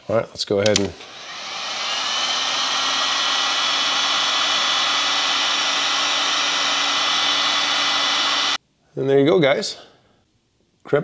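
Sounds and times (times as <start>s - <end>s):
heat gun blowing air: 0.8s - 8.6s.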